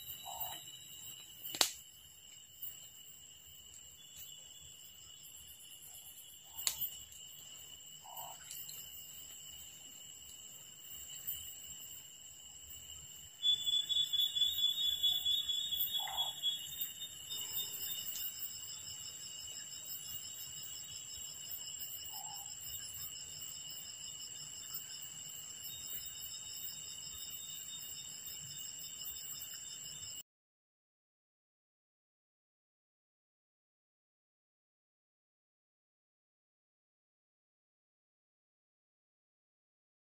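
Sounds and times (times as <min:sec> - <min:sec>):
rapidly pulsing frog call: 0:00.0 - 0:01.1, 0:08.0 - 0:08.8, 0:13.4 - 0:18.0, 0:21.9 - 0:23.0
insects trilling: 0:00.0 - 0:30.2.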